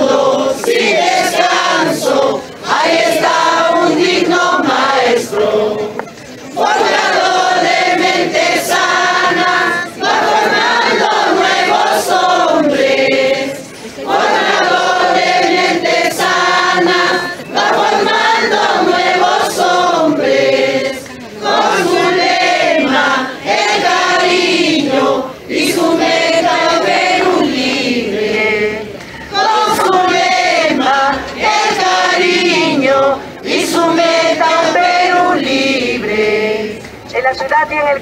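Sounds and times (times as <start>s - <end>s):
crowd singing together: 0.0s - 37.2s.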